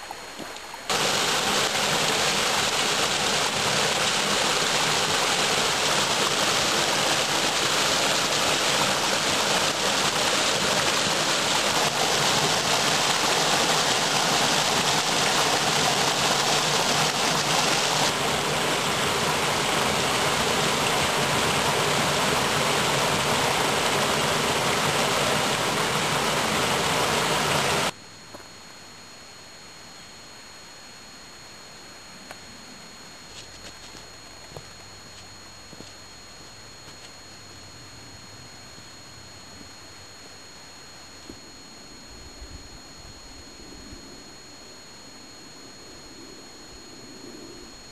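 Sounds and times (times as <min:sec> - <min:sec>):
stream rushing over boulders: 0:00.9 - 0:27.9.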